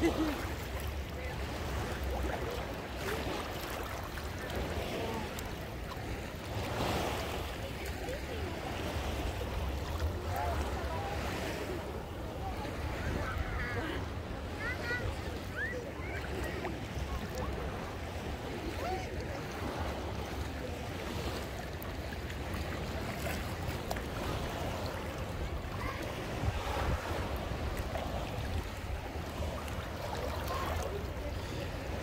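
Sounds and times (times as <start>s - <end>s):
waves washing on shore: 0.0s - 32.0s
wind on microphone: 24.3s - 29.6s.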